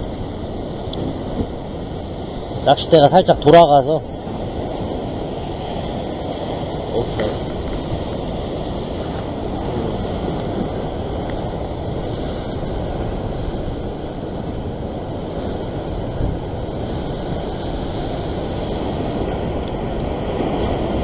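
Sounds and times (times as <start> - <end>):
surf breaking over rocks: 0.0 - 21.0
wind on microphone: 0.0 - 21.0.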